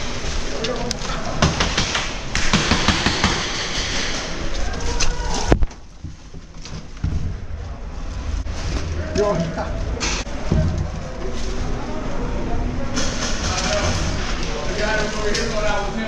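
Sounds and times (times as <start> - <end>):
loud sharp crack: 1.4 - 4.5
rustling of movement: 4.0 - 16.0.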